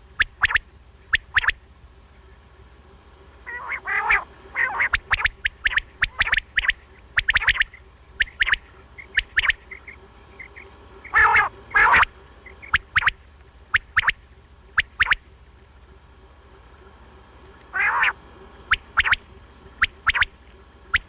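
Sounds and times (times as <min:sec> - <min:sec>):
quail calling: 0:00.0 - 0:01.6, 0:03.2 - 0:21.0
rasping quail calls: 0:00.0 - 0:02.4, 0:03.2 - 0:21.0.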